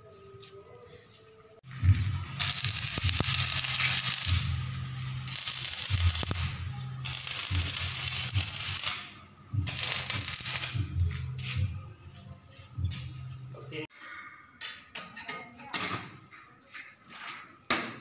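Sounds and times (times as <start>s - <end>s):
welding arc crackling sizzle: 2.2s - 10.9s.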